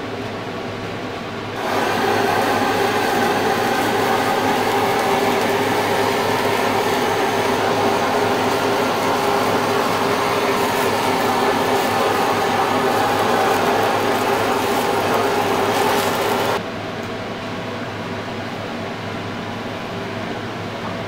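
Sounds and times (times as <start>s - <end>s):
gas torch flame hissing: 1.6s - 16.6s.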